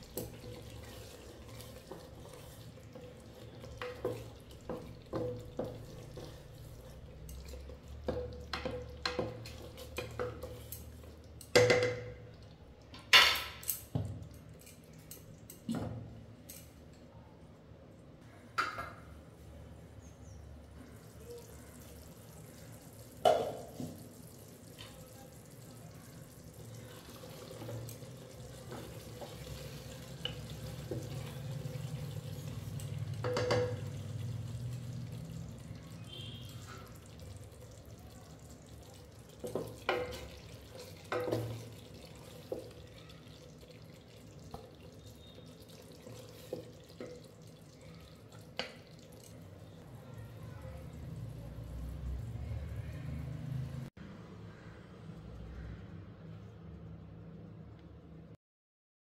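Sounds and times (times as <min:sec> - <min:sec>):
utensils clinking on cookware: 0:13.0 - 0:15.8, 0:28.6 - 0:34.4, 0:39.4 - 0:41.8.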